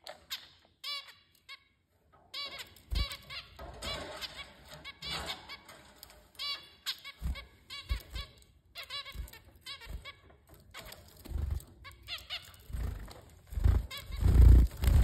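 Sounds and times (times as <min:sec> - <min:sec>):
finches beeping calls: 0:13.6 - 0:15.0.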